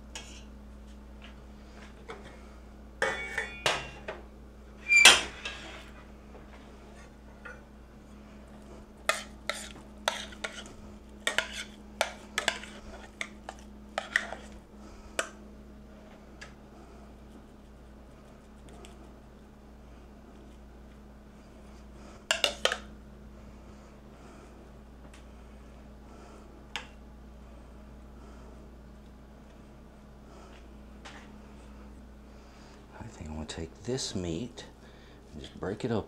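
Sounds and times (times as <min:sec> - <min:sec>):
metal utensils clinking on pots: 0:03.0 - 0:04.0.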